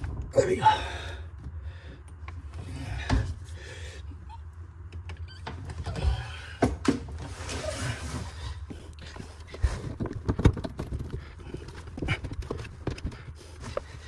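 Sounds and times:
hands knocking and scraping pipes: 4.9 - 14.0.

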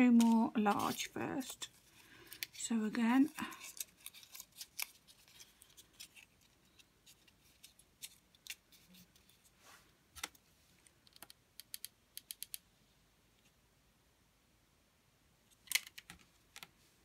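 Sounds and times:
card paper crackling: 0.0 - 9.4.

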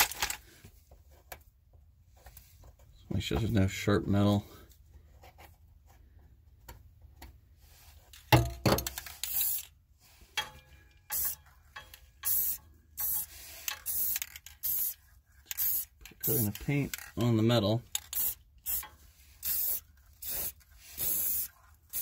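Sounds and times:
spray paint can hissing: 9.2 - 9.7, 11.1 - 11.4, 12.2 - 16.6, 18.0 - 22.0.

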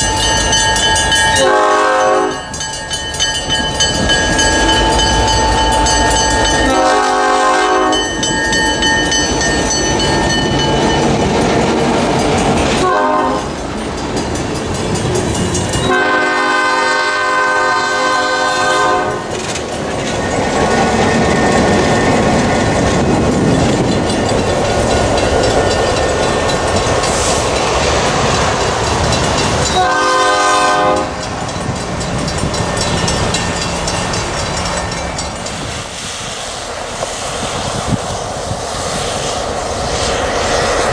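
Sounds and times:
train wheels clacking on rail joints: 0.0 - 16.8, 18.7 - 40.9
diesel locomotive engine running: 0.0 - 40.9
locomotive horn blasts: 1.2 - 2.5, 4.4 - 8.2, 12.8 - 13.6, 15.8 - 19.3, 29.7 - 31.3.

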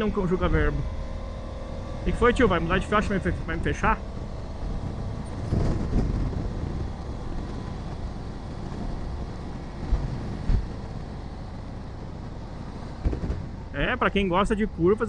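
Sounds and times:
wind rushing over microphone: 0.3 - 14.8
low thumps: 3.2 - 13.8.

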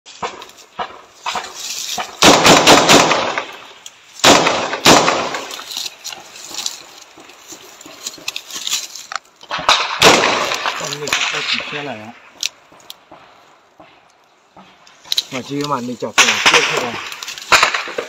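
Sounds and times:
assault rifle fire: 2.2 - 3.6, 4.2 - 5.5, 9.5 - 11.7, 16.2 - 18.0
gunshot echo: 2.2 - 5.6, 9.5 - 12.0, 16.2 - 18.0.

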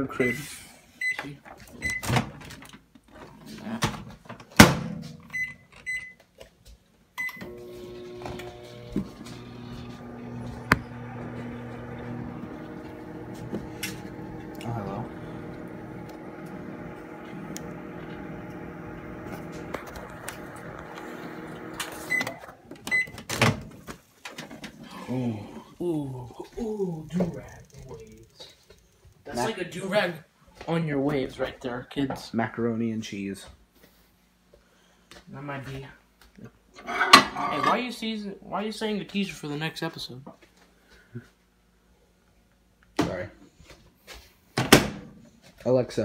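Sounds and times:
microwave oven humming: 7.2 - 23.4.

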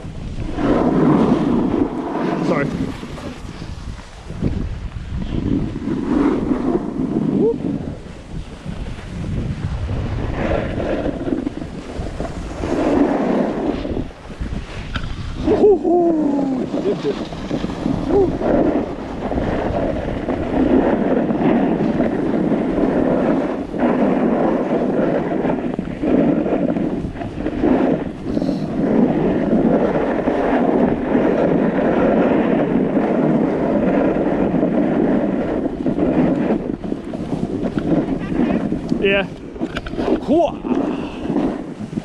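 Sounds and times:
skis scraping on snow: 0.0 - 42.0
wind buffeting microphone: 0.0 - 42.0
person whooping: 15.4 - 17.2, 18.1 - 18.4.

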